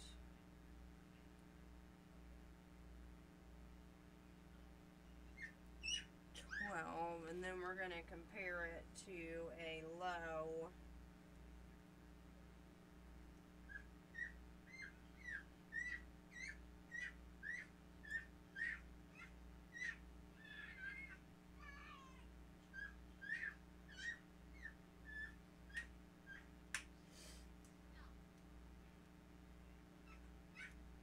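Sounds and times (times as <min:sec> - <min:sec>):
faint room hum: 0:00.0 - 0:31.0
small animal chirping: 0:05.3 - 0:06.6, 0:13.7 - 0:26.5.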